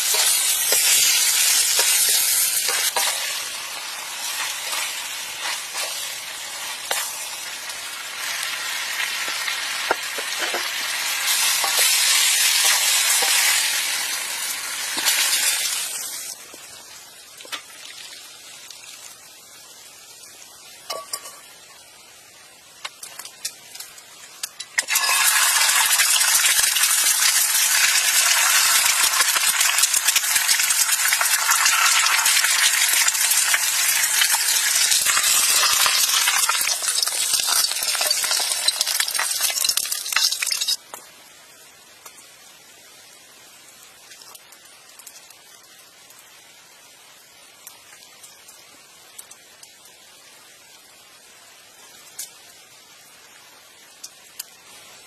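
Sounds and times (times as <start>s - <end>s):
eggs sizzling in oil: 0.0s - 55.0s.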